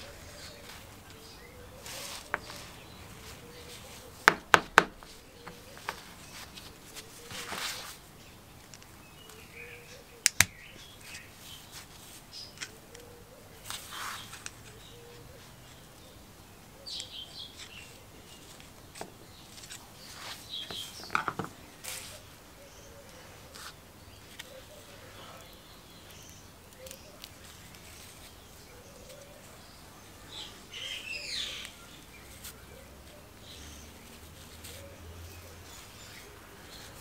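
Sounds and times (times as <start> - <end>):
work gloves rustling: 0.0 - 9.4, 17.4 - 22.4.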